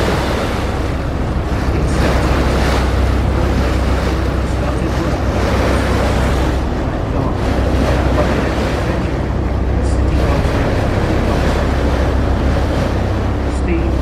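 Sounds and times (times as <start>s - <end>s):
ferry engine rumble: 0.0s - 14.0s
water rushing past hull: 0.0s - 14.0s
wind buffeting microphone: 0.0s - 14.0s.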